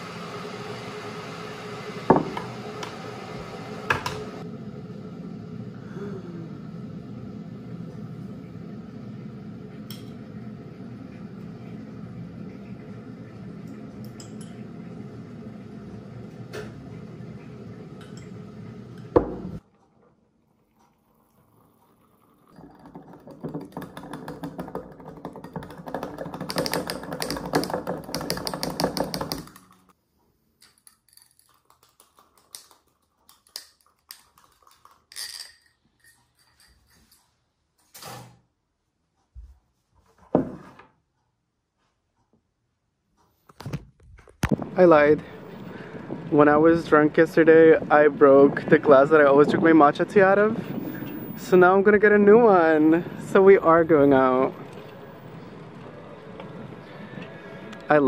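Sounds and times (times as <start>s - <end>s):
hot water pouring into a glass: 20.4s - 29.6s, 44.5s - 57.8s
steady rumbling noise: 44.5s - 58.0s.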